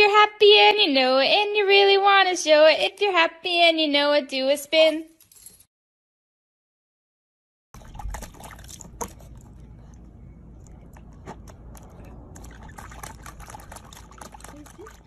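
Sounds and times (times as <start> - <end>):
water splashing in a tub: 7.8 - 15.0.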